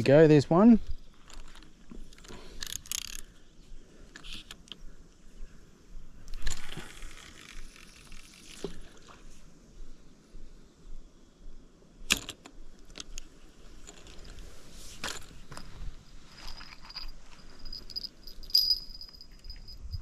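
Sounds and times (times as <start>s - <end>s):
fishing reel clicks and rustles: 0.6s - 3.4s, 6.3s - 9.1s, 12.1s - 19.8s.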